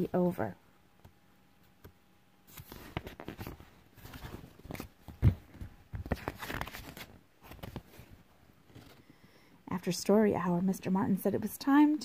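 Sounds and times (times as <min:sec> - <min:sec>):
book pages turning: 0:01.6 - 0:09.1.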